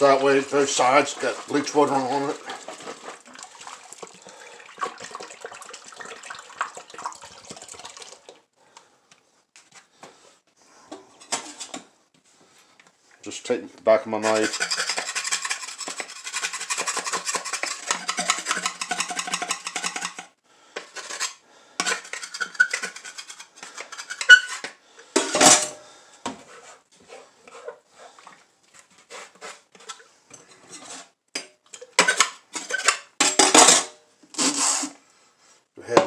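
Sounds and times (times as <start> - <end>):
plastic parts clattering in water: 0.0 - 8.4, 14.3 - 25.8, 31.4 - 33.9
knife scraping plastic: 14.2 - 24.8, 34.3 - 35.0.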